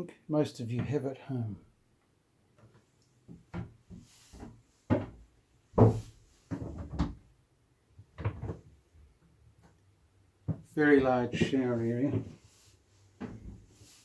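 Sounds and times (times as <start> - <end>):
small door knocks and clunks: 2.6 - 7.3, 8.0 - 8.7.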